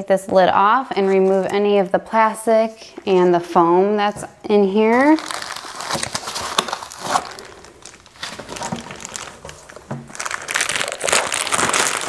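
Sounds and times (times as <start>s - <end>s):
plastic wrap crinkling: 4.8s - 12.0s.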